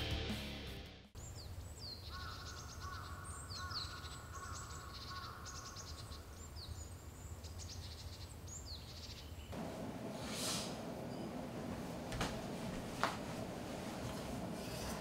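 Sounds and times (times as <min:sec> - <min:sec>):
birds chirping and trilling: 0:01.2 - 0:10.1, 0:10.8 - 0:12.6
low steady hum: 0:09.5 - 0:15.0.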